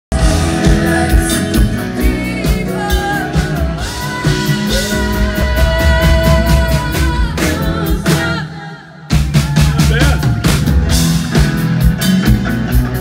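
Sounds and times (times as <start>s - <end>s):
person singing: 0.1s - 10.3s
drums: 0.1s - 13.0s
electric guitar: 0.1s - 13.0s.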